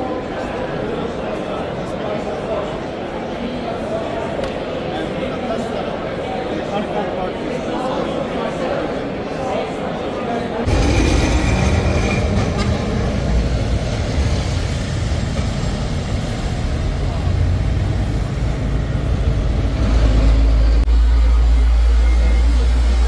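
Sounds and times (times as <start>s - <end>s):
street traffic: 10.6s - 23.0s
tram rumbling: 10.6s - 23.0s.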